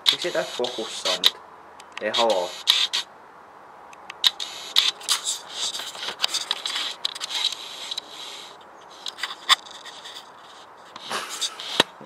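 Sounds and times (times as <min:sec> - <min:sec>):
camera handling scraping and clicks: 0:04.0 - 0:12.0.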